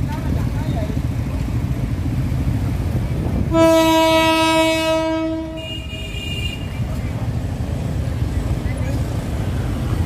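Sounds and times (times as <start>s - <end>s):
low rumble of traffic: 0.0s - 10.0s
higher-pitched horn: 3.5s - 6.6s
locomotive horn blast: 3.5s - 6.8s.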